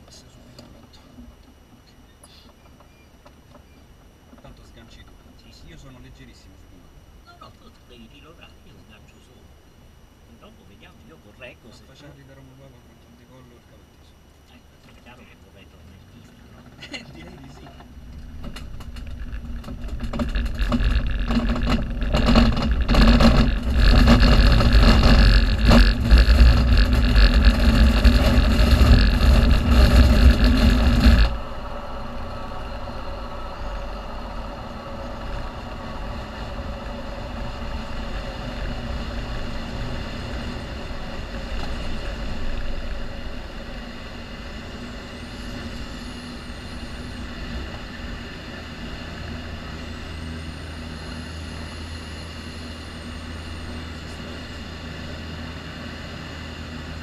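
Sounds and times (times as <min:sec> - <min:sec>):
tow plane engine: 0:00.0 - 0:57.0
wheel rumbling over turf: 0:16.4 - 0:50.9
rushing air: 0:18.2 - 0:56.0.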